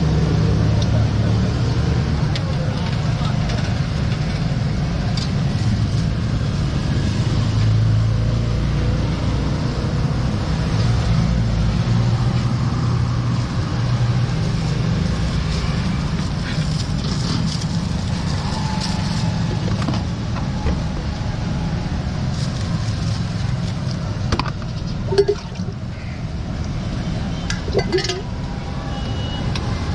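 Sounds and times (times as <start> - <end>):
street traffic: 0.0 - 29.9
vehicle engine humming: 11.4 - 28.9.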